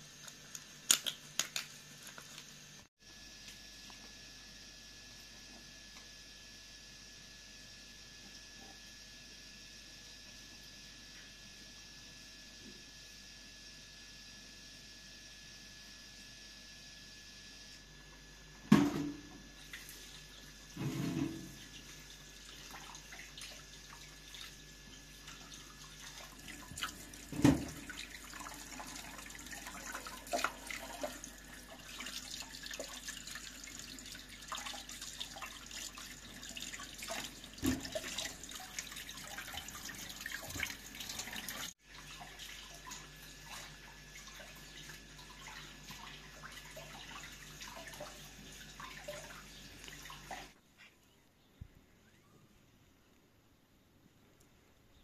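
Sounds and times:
water splashing and trickling: 25.2 - 50.6.

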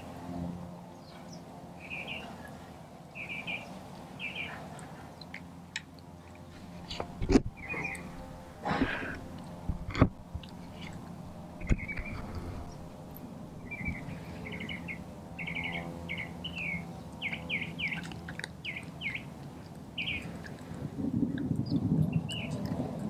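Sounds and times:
small songbird chirping: 1.0 - 2.3, 3.2 - 4.6, 7.6 - 8.1, 11.6 - 12.8, 13.6 - 19.3, 20.0 - 20.3, 21.6 - 22.6.

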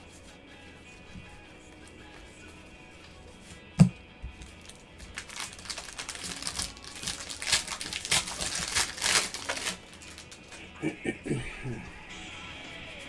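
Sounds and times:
foil card pack crinkling and tearing: 4.3 - 10.6.

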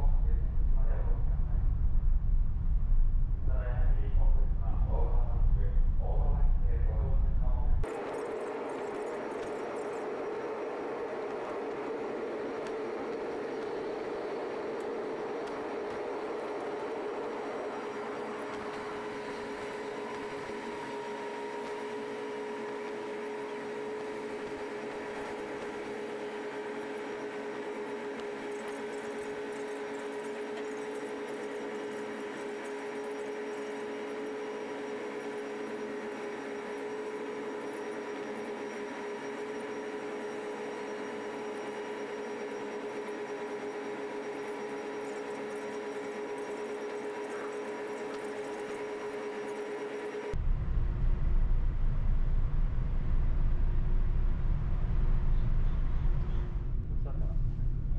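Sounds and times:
low rushing noise: 0.0 - 7.9, 50.4 - 57.9
ship machinery hum: 0.0 - 57.9.

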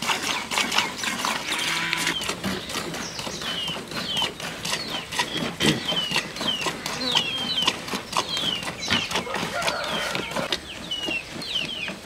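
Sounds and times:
small birds chirping: 0.2 - 12.0.

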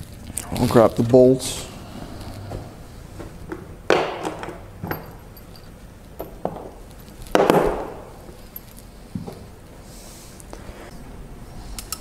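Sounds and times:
metallic clinks of tools: 4.8 - 7.2.

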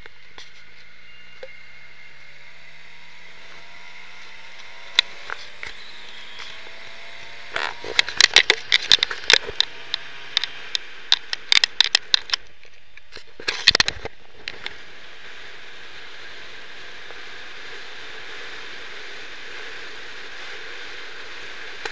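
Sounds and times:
crackling pops: 7.5 - 14.8.

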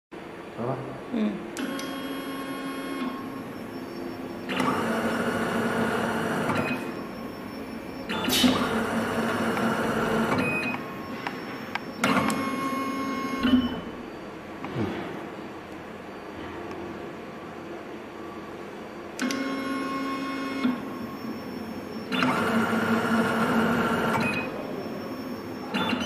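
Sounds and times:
machine motor whirring: 1.6 - 13.9, 19.2 - 26.0.

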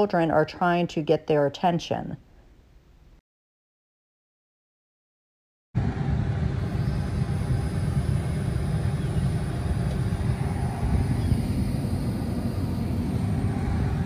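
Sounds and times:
road and tyre noise in car cabin: 5.9 - 14.0.

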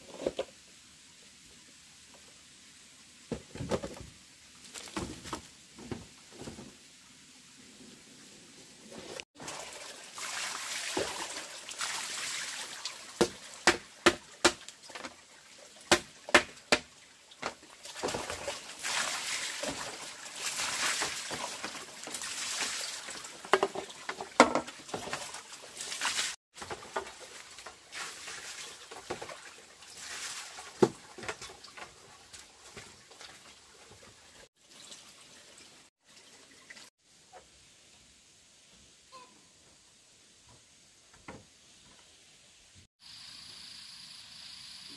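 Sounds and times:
water splashing onto slat floor: 9.1 - 15.2, 15.9 - 33.4.

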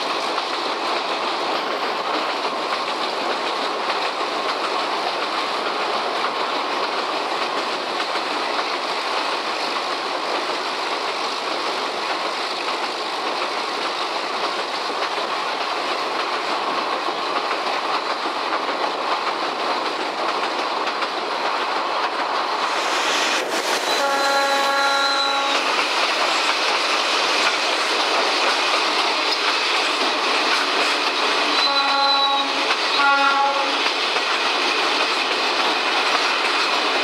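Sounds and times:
train running noise: 0.0 - 37.0
locomotive horn blast: 23.9 - 25.7, 31.6 - 33.8.

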